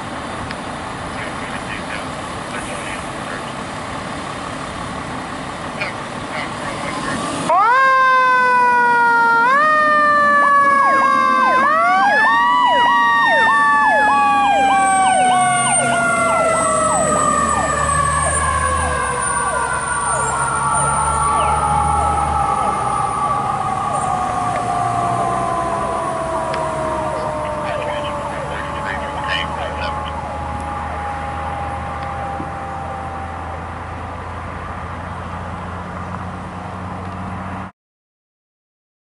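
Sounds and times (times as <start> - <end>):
truck engine rumbling: 0.0 - 37.7
siren yelping: 6.4 - 33.8
siren wailing: 6.6 - 34.1.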